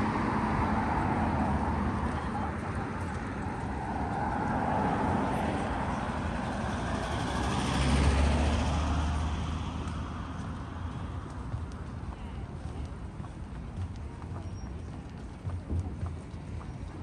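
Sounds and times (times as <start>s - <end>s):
vehicle passing close by: 0.0s - 11.5s
city traffic noise: 0.0s - 17.0s.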